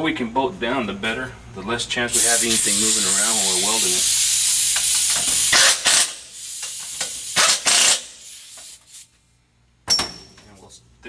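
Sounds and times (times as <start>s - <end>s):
air hose hissing: 2.1s - 9.1s
air ratchet running: 2.1s - 9.1s.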